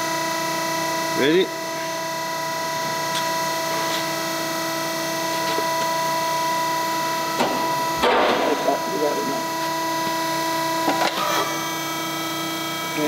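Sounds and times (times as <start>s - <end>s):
press brake motor humming: 1.7s - 8.8s.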